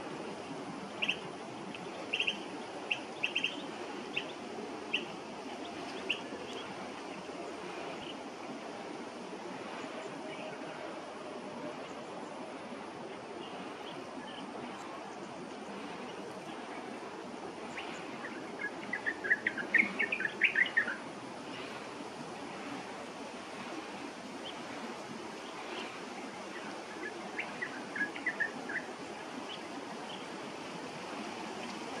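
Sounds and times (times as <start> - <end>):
steady background noise: 0.0 - 32.0
bird chirping: 1.0 - 5.1, 17.7 - 21.0.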